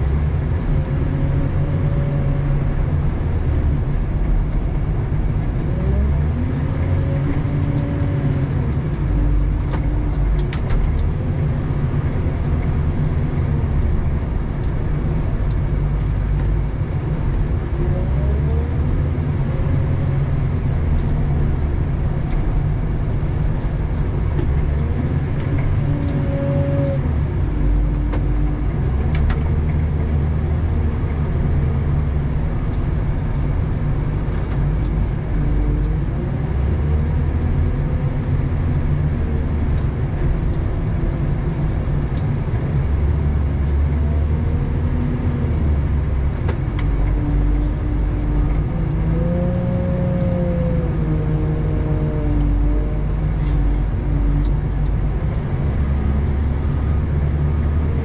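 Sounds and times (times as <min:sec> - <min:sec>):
diesel engine running: 0:00.0 - 0:58.0
engine whine rising and falling: 0:15.4 - 0:58.0.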